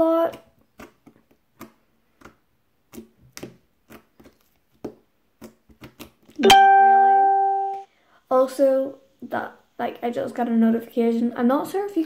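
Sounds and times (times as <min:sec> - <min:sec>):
hardened slime clicking and popping: 0:00.1 - 0:06.4
notification chime: 0:06.4 - 0:07.9.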